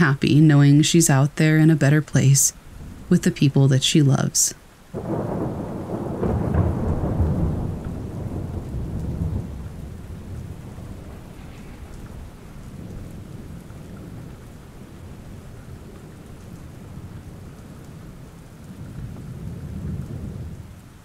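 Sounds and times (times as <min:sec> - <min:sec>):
steady rain: 0:00.0 - 0:21.0
rolling thunder: 0:02.6 - 0:03.2, 0:04.9 - 0:21.0.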